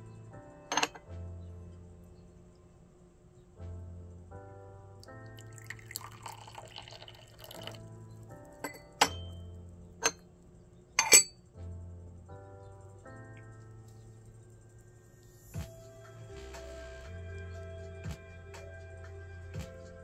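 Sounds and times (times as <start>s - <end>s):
background music with sustained chords: 0.0s - 20.0s
teaware clinking: 0.7s - 1.0s, 8.6s - 9.4s, 11.0s - 11.4s
tea pouring: 5.0s - 7.9s.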